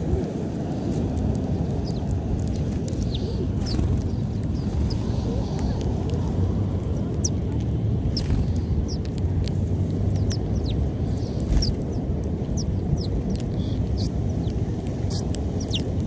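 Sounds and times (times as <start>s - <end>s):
low rumble: 0.0s - 16.0s
sparrows chirping: 1.6s - 5.8s, 6.4s - 9.2s, 9.9s - 16.0s.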